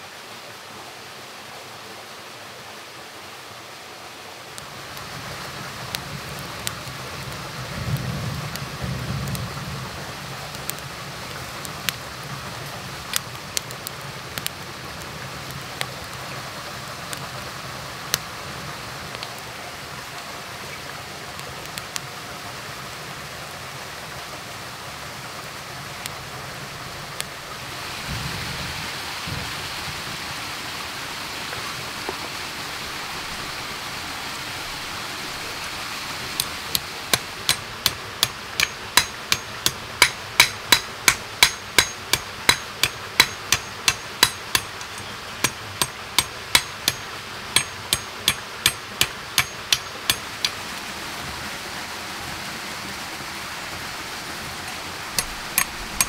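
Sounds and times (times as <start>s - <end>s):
knife blade tapping stick on stone: 36.4s - 50.6s, 54.7s - 56.0s.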